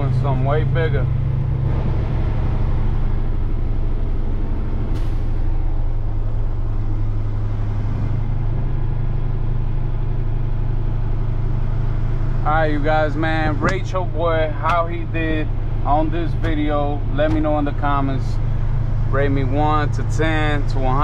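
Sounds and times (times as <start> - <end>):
diesel engine drone: 0.0 - 21.0.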